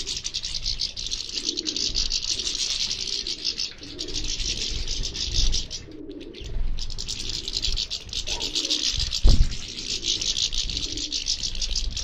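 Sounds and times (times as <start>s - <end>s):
finches twittering: 0.0s - 12.0s
low thump: 9.2s - 9.6s.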